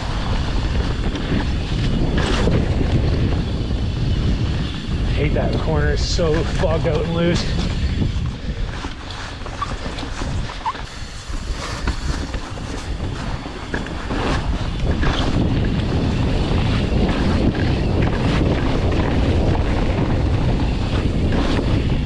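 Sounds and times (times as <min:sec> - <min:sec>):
bike knocks and rattles: 0:00.0 - 0:04.9
wind buffeting microphone: 0:00.0 - 0:22.0.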